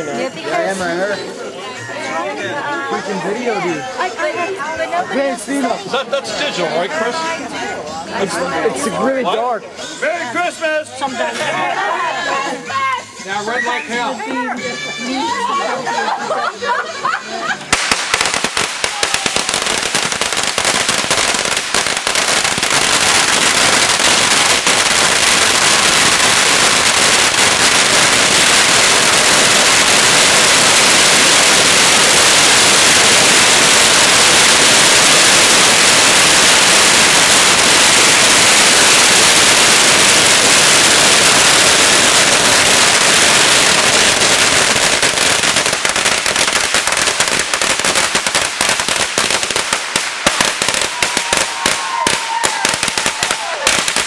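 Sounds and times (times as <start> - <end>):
firecrackers crackling: 17.7 - 54.0.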